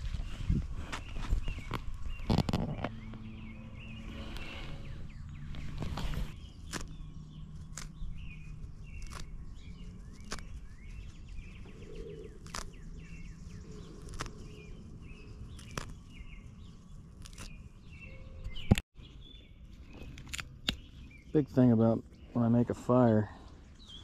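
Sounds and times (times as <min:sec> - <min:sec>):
birds chirping: 0:00.0 - 0:24.0
bark and twigs snapping: 0:05.6 - 0:11.2, 0:11.8 - 0:13.0, 0:13.7 - 0:14.8, 0:15.4 - 0:16.3, 0:17.1 - 0:17.6, 0:19.9 - 0:20.9.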